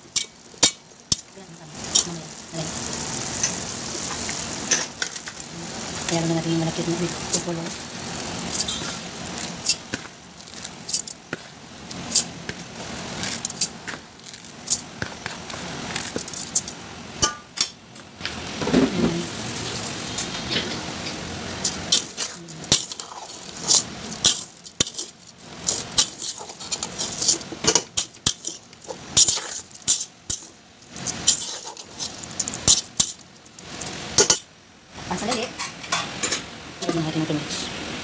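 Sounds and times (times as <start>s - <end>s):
utensil scraping metal pot: 0.1s - 17.4s, 21.5s - 34.4s.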